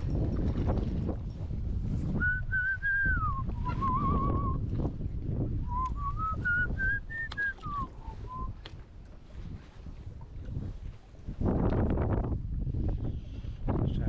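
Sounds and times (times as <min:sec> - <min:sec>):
person whistling a slow tune: 0:02.2 - 0:04.6, 0:05.7 - 0:08.6.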